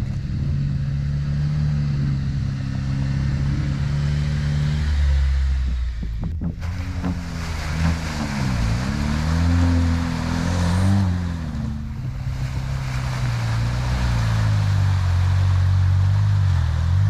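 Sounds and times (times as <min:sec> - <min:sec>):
car engine revving: 0:00.0 - 0:17.0
tyre and wind noise: 0:05.6 - 0:17.0.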